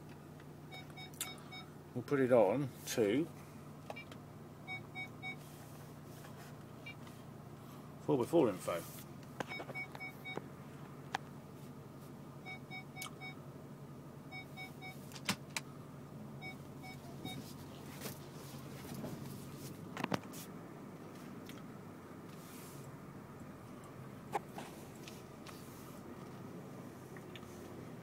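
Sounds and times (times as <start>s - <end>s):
diesel engine idling: 0.0s - 28.0s
short electronic beeps: 0.7s - 1.7s, 4.7s - 5.4s, 12.4s - 13.4s, 16.4s - 17.5s.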